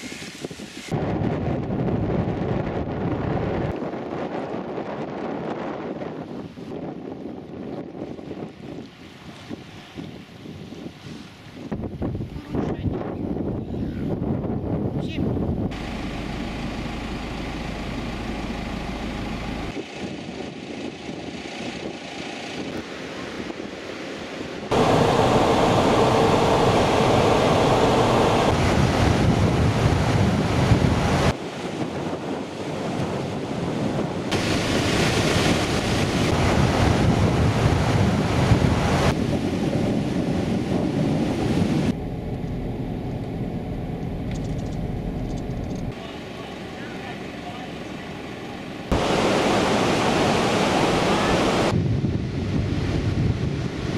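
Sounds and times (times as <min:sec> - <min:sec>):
wind buffeting the microphone: 0:00.0 - 0:46.0, 0:48.9 - 0:53.9
vehicle noise: 0:15.7 - 0:20.0, 0:24.7 - 0:31.4, 0:41.9 - 0:49.6
surf washing on a beach: 0:15.7 - 0:42.0, 0:45.9 - 0:53.9.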